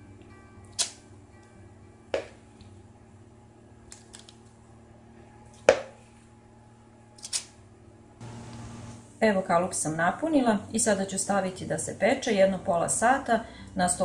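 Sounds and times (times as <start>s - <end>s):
steady low hum: 0.0s - 14.0s
knocks on metal muffin tin: 2.2s - 2.4s.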